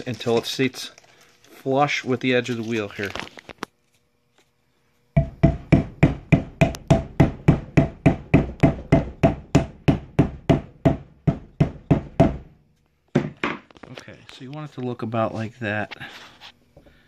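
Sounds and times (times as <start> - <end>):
rubber mallet tapping metal: 5.2 - 12.4.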